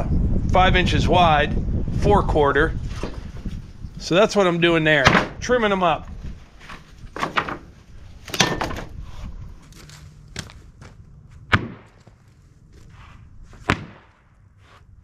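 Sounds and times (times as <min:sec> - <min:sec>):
wooden boards knocking: 0:07.2 - 0:07.7.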